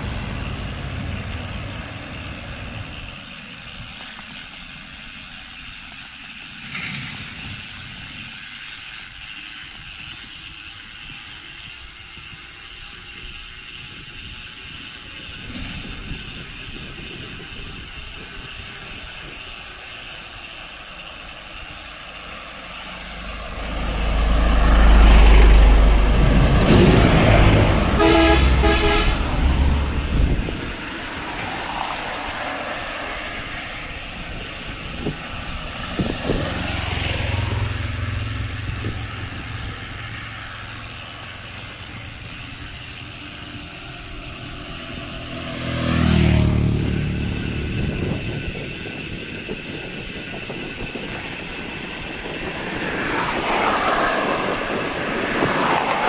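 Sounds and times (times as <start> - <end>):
vehicle passing with deep rumble: 0.0 - 9.3, 15.0 - 56.0
road traffic hiss: 0.0 - 56.0
vehicle horn toots: 26.6 - 30.2.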